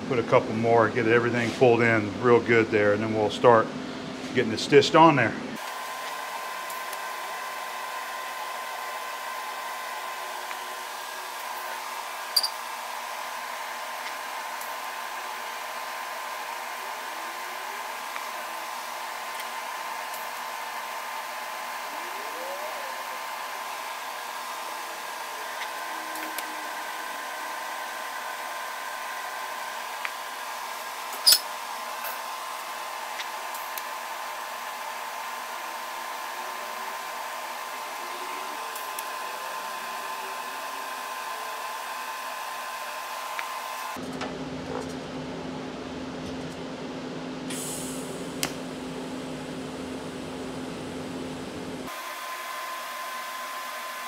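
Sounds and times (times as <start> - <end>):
welding arc hissing: 5.6 - 44.0, 47.5 - 48.6.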